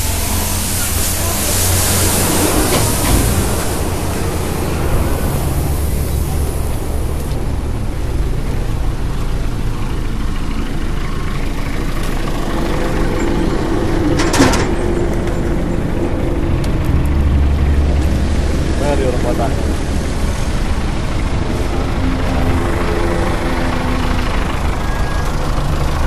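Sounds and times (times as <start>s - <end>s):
air hissing: 0.0s - 8.7s
truck engine idling: 0.0s - 26.0s.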